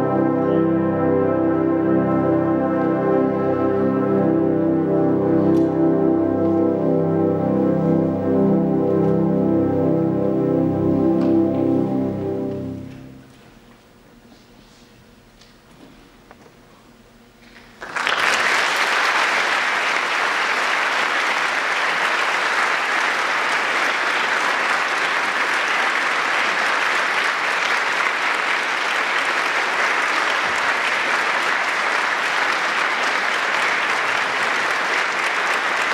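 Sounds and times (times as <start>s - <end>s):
audience applauding: 17.8s - 35.9s.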